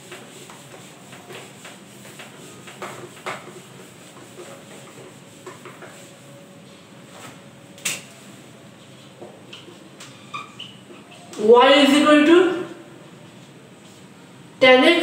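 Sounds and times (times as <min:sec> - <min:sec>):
duster rubbing whiteboard: 0:00.0 - 0:06.5.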